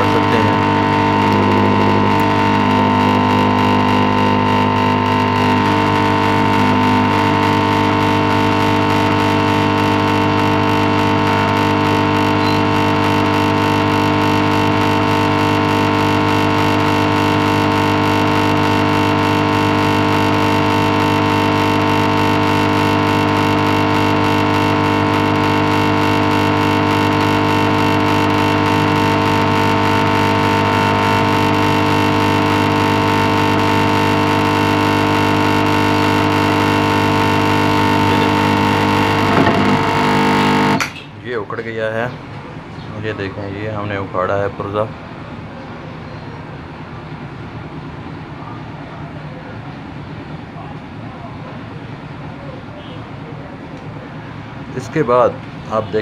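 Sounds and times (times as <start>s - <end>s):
hot-air gun fan humming: 0.0s - 44.8s.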